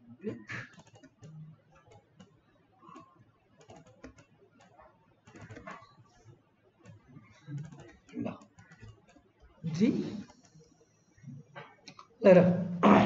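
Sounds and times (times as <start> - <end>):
keyboard keys clicking: 0.4 - 2.3, 2.9 - 5.8.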